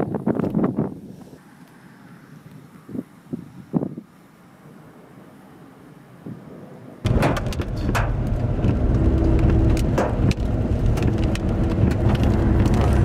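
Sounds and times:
car road and engine rumble: 0:00.1 - 0:13.0
raindrops tapping windshield: 0:07.1 - 0:13.0.

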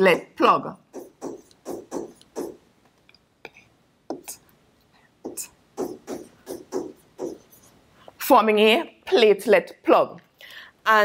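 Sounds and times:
stylus scratching on tablet screen: 0:00.9 - 0:02.7, 0:05.2 - 0:07.8.

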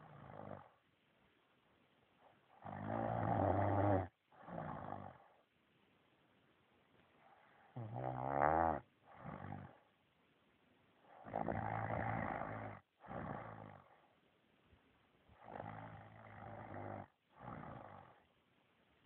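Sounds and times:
man snoring: 0:02.6 - 0:05.2, 0:07.8 - 0:09.8, 0:11.2 - 0:13.9, 0:15.4 - 0:18.2.

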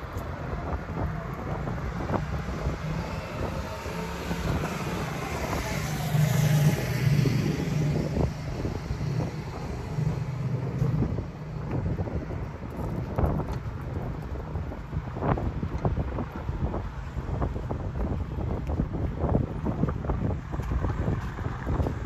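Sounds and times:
outdoor rumble: 0:00.0 - 0:22.0
vehicle passing by: 0:00.0 - 0:22.0.

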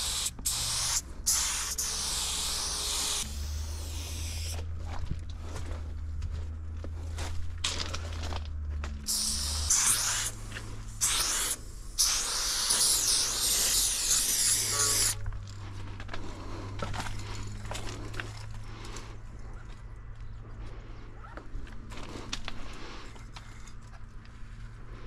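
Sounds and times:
spray can hissing: 0:00.0 - 0:04.6, 0:09.1 - 0:15.2
steady low hum: 0:00.0 - 0:25.0.

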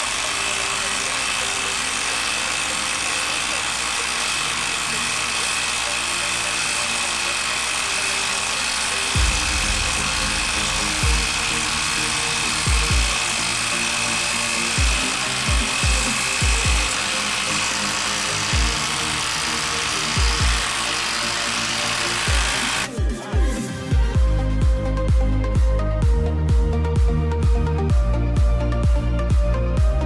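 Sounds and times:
impact driver hammering: 0:00.0 - 0:22.9
electronic music: 0:09.1 - 0:17.0.

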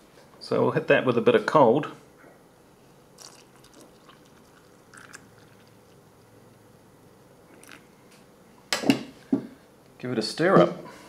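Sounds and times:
water trickling into a mug: 0:03.2 - 0:06.1, 0:07.6 - 0:07.8.

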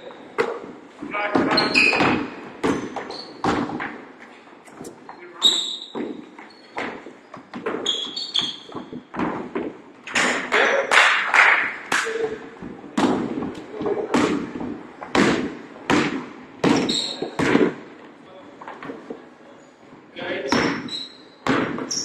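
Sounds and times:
sneakers squeaking: 0:00.0 - 0:10.9, 0:16.6 - 0:17.7, 0:20.4 - 0:22.0
players' feet landing: 0:12.6 - 0:17.8.

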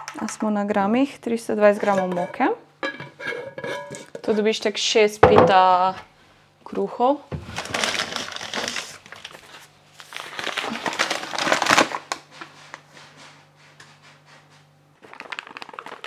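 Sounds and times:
flour bag crinkling and rustling: 0:07.4 - 0:12.9, 0:15.0 - 0:16.0.

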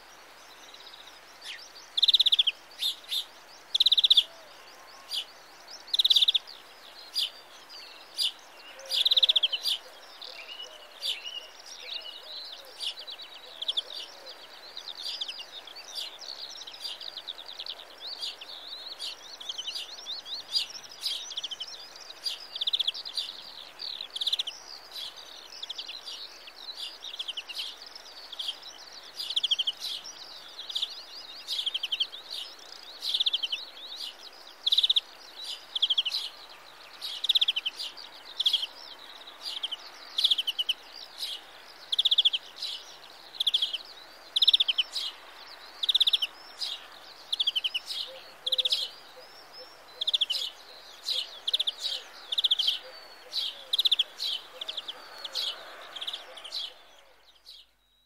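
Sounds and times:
faint steady background noise: 0:00.0 - 0:58.0
bird singing rapid trills: 0:05.0 - 0:58.0.

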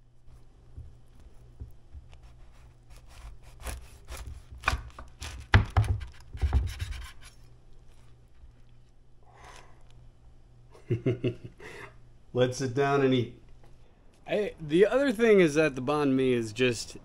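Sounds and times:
knife sawing through crusty bread: 0:02.1 - 0:05.5.

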